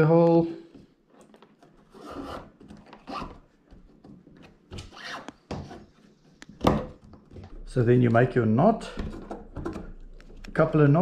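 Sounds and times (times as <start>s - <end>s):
cord rubbing against plastic: 1.1s - 6.4s.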